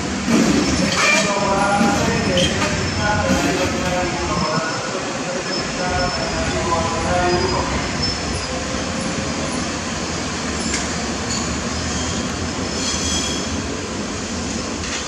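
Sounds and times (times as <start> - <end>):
train wheels rumbling on track: 0.0 - 15.0
thin wheel squeal: 11.7 - 13.5.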